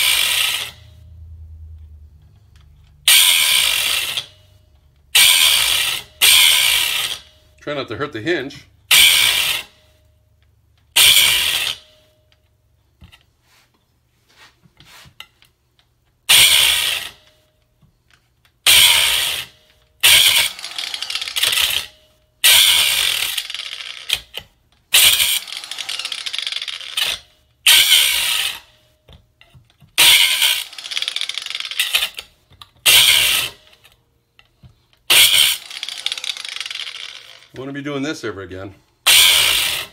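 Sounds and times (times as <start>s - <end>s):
angle grinder grinding steel: 0.0s - 1.0s, 3.0s - 4.4s, 5.1s - 9.9s, 10.9s - 12.1s, 16.3s - 17.4s, 18.6s - 28.8s, 30.0s - 34.0s, 35.0s - 38.0s, 39.0s - 39.9s.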